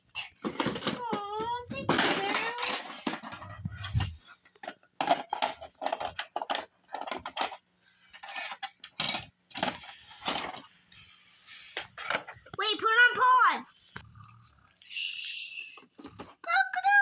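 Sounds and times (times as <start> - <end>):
plastic toy pieces clicking: 0.2 - 10.6.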